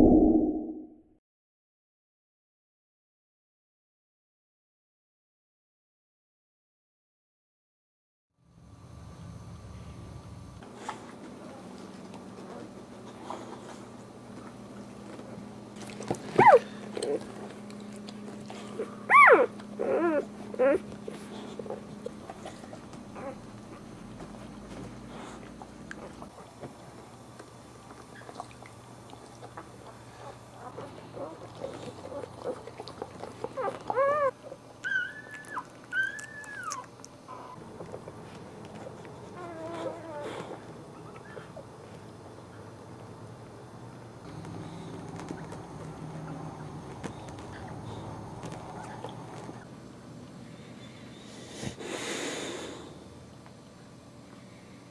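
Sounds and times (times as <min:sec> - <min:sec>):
puppies crying: 0:16.2 - 0:17.4, 0:18.6 - 0:21.8, 0:30.6 - 0:37.6, 0:39.2 - 0:41.6.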